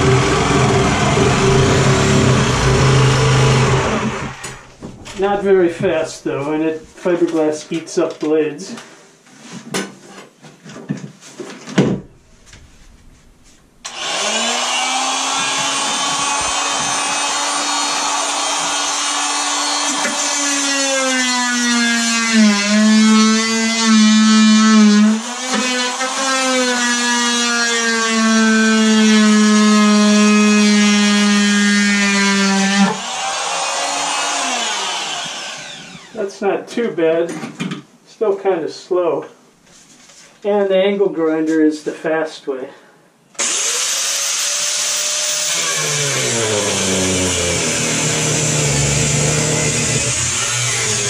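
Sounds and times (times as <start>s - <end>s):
oscillating multi-tool cutting: 13.9s - 24.0s, 32.8s - 36.2s, 43.4s - 51.0s.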